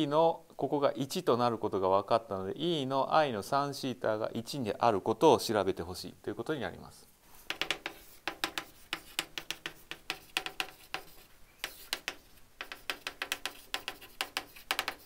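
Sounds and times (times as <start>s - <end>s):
chalk tapping on blackboard: 7.4s - 15.0s.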